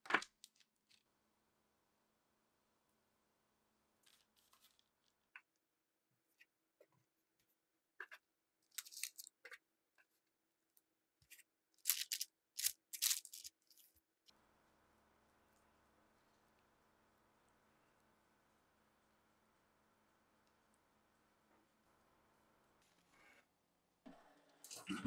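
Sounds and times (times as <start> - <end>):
crisp crunching and scraping: 8.8 - 9.3, 11.8 - 13.9.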